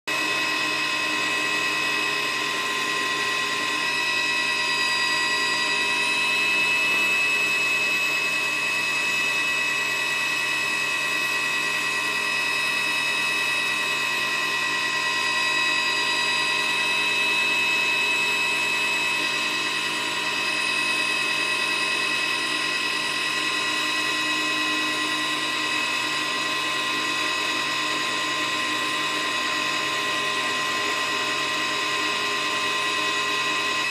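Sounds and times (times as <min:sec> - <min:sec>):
helicopter turbine whining: 0:00.1 - 0:33.9.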